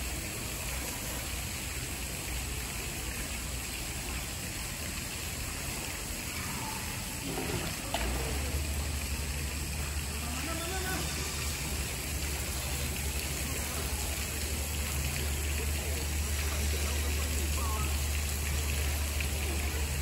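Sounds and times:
running water rushing: 0:00.0 - 0:20.0
faint voices: 0:00.1 - 0:20.0.

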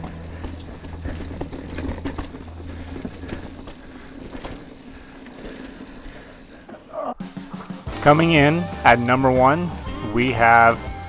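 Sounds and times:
bike clicks and rattles: 0:00.0 - 0:07.9
bike tyres on dirt trail: 0:00.0 - 0:11.0.

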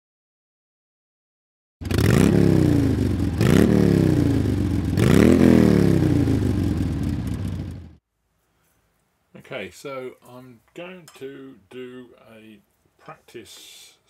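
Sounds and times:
motor revving: 0:01.8 - 0:06.6.

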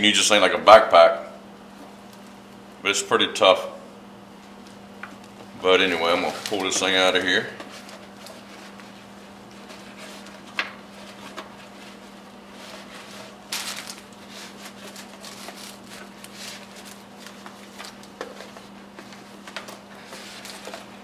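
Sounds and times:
steady low hum: 0:00.0 - 0:21.0
bag rustling: 0:12.7 - 0:18.1.

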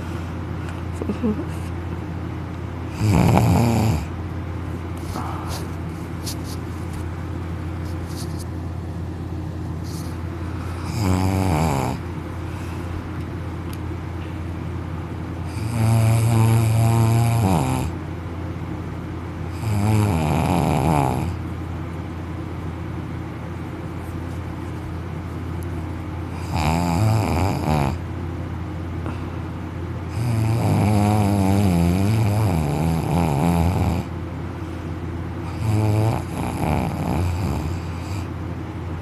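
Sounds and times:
steady low hum: 0:00.0 - 0:39.0
man snoring: 0:02.9 - 0:04.1, 0:10.7 - 0:12.0, 0:15.5 - 0:18.0, 0:19.5 - 0:21.4, 0:26.4 - 0:28.0, 0:30.1 - 0:34.1, 0:35.4 - 0:38.3.

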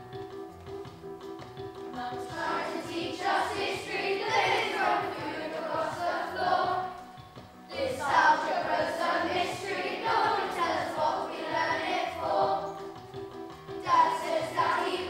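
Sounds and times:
backing music: 0:00.0 - 0:15.0
children singing: 0:02.0 - 0:07.1, 0:07.7 - 0:12.9, 0:13.8 - 0:15.0.

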